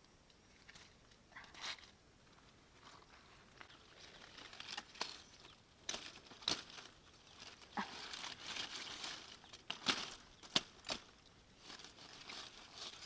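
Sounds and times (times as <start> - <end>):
leaves rustling and tearing: 2.8 - 13.0.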